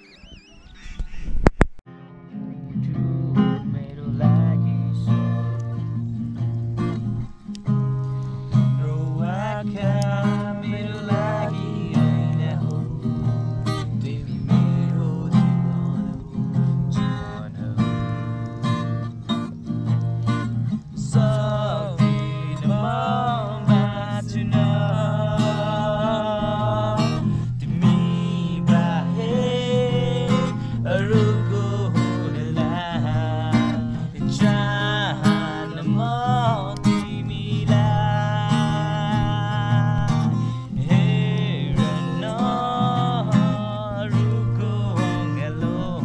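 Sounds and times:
acoustic guitar strumming: 1.9 - 46.0
person singing: 8.7 - 18.0, 21.0 - 46.0.

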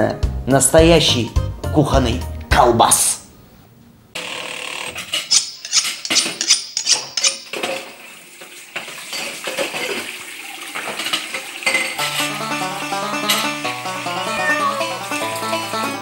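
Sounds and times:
dishes and cutlery clattering: 5.0 - 8.0, 8.8 - 12.4, 13.2 - 13.6
plucked-string country tune: 11.9 - 16.0.

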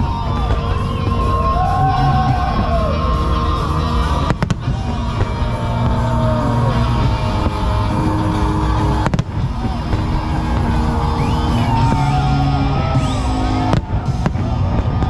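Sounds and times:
fireworks booming: 0.0 - 15.0
music playing: 0.0 - 15.0
sharp cracks of firework bursts: 3.4 - 15.0.

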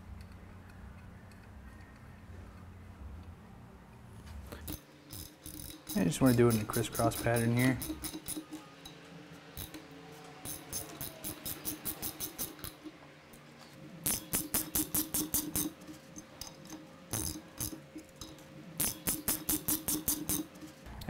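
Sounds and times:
hand ratchet clicking rapidly: 4.6 - 8.6, 10.4 - 12.8, 14.0 - 20.7.

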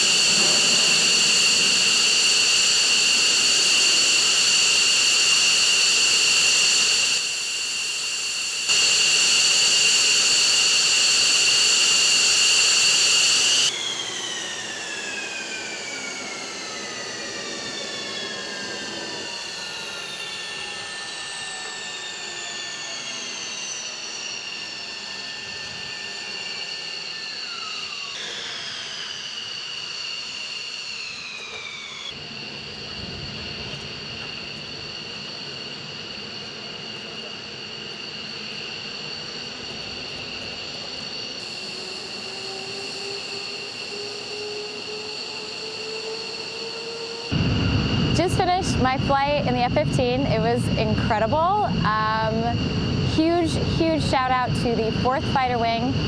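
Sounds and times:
jet engines whining: 0.0 - 56.0
turbine spooling down whine: 0.0 - 56.0.

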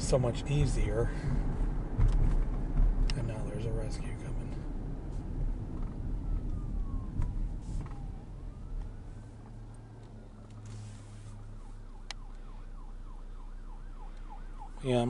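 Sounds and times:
car road rumble: 0.0 - 15.0
emergency siren wailing and yelping: 5.7 - 15.0.

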